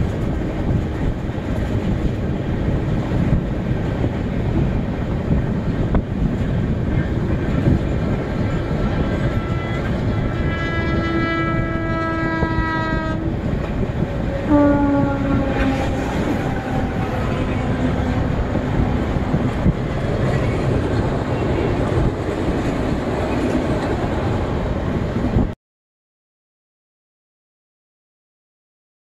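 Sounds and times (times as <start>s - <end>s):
train wheels clattering on rails: 0.0s - 11.1s, 12.8s - 24.5s
passing train horn: 8.5s - 19.4s
train horn: 8.6s - 13.4s, 14.2s - 18.7s.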